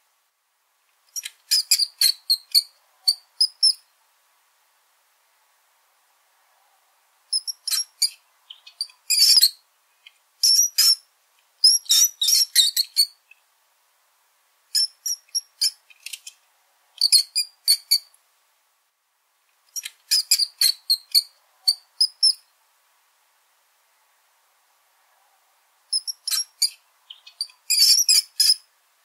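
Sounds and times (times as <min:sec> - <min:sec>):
rodent squeaking: 0:01.1 - 0:03.8, 0:07.3 - 0:09.6, 0:10.4 - 0:11.0, 0:11.6 - 0:13.2, 0:14.8 - 0:16.3, 0:17.0 - 0:18.1, 0:19.7 - 0:22.4, 0:25.9 - 0:28.6.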